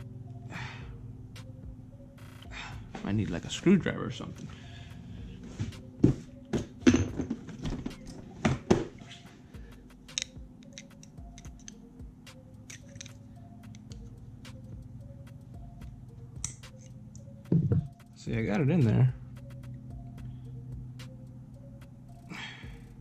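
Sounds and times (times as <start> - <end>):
faint background music: 0.0 - 23.0
screwdriver clicking and scraping metal: 10.1 - 11.8, 12.6 - 14.1, 16.4 - 17.3.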